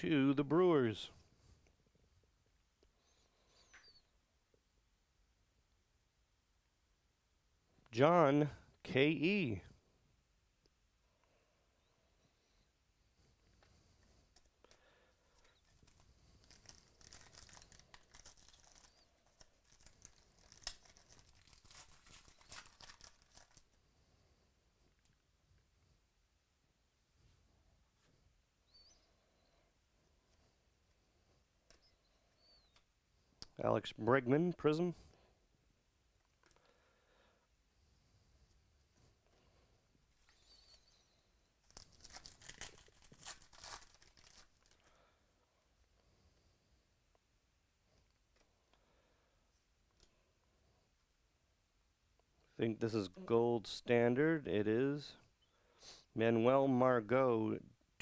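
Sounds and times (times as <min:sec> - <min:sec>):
foil wrapper tearing and crinkling: 0:15.5 - 0:23.7, 0:41.6 - 0:45.0.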